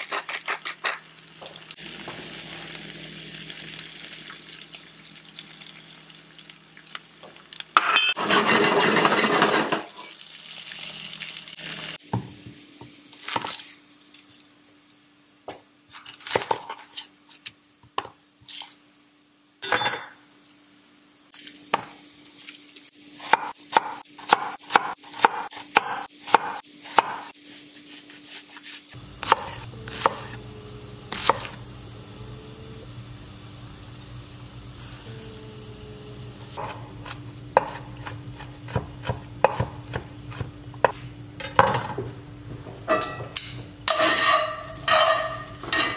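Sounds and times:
potatoes sizzling in a skillet: 0.9s - 15.4s, 20.2s - 40.4s, 43.8s - 45.9s
knife chopping on wooden board: 23.3s - 27.3s, 29.2s - 30.4s, 36.6s - 41.0s
steady hum: 29.0s - 42.8s.

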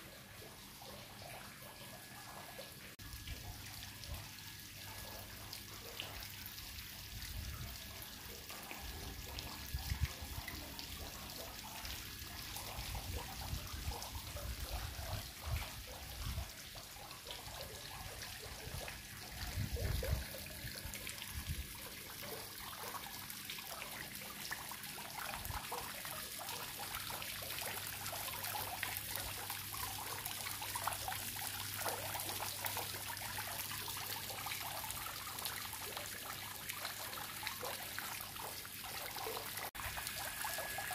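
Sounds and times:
fountain water splashing: 7.6s - 40.9s.

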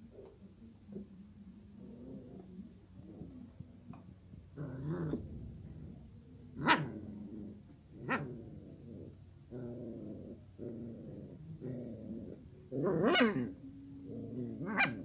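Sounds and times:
puppies growling: 0.1s - 15.0s
puppy barking: 6.6s - 7.0s, 14.6s - 15.0s.

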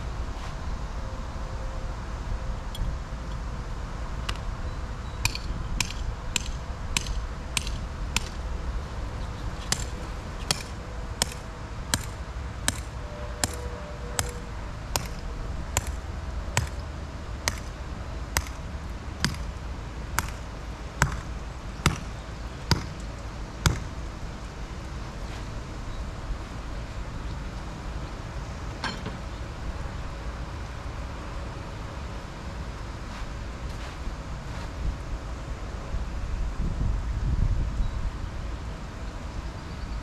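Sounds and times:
hammer blows on ground stake: 10.5s - 13.6s.

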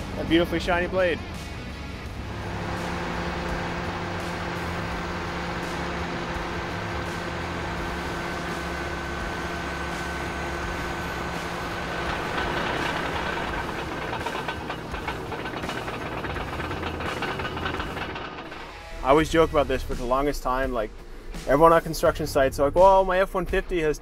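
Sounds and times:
bulldozer diesel engine running: 1.9s - 19.6s
steel tracks rattling: 2.2s - 19.9s.

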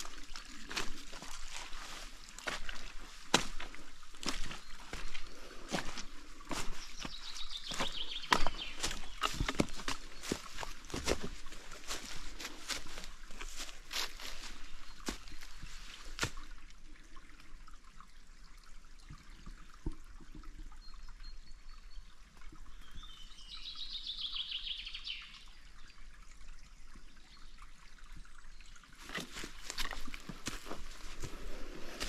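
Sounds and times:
footsteps: 0.6s - 16.4s, 29.0s - 32.0s.

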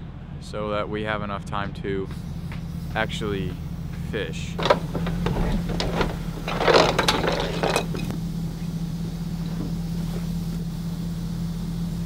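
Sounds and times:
clattering handling noise: 4.6s - 8.1s.

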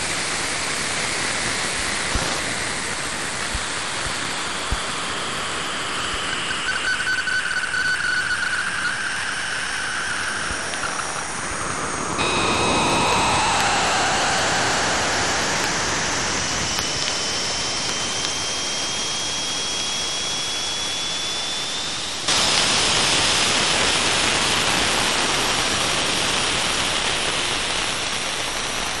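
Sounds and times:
steady hiss: 0.0s - 7.0s, 7.6s - 29.0s
thin tone rising in pitch: 6.3s - 22.3s.

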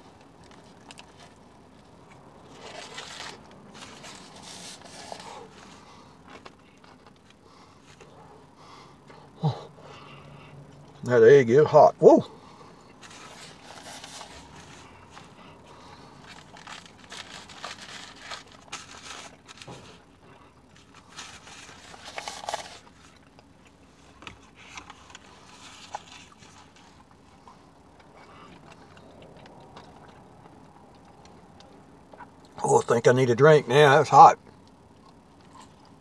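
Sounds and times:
person chewing: 0.0s - 11.0s, 12.4s - 32.6s, 34.4s - 36.0s
foil wrapper crinkling: 2.4s - 8.0s, 13.0s - 20.1s, 20.7s - 23.5s, 24.2s - 27.1s.

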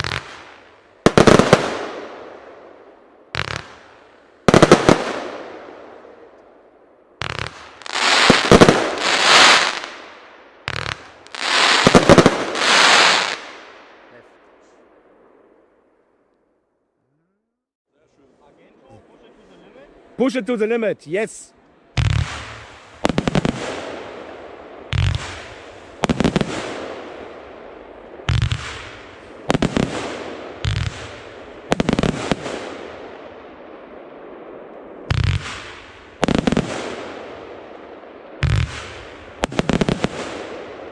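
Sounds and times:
firework cracks: 0.0s - 2.7s, 3.3s - 6.5s, 7.2s - 13.8s, 22.0s - 33.9s, 34.6s - 40.9s.

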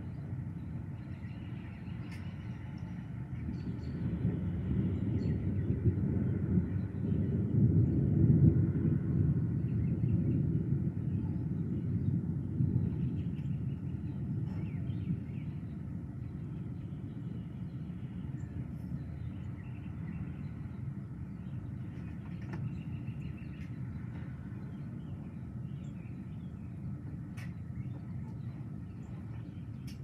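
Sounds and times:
thunder rumble: 2.0s - 17.4s.

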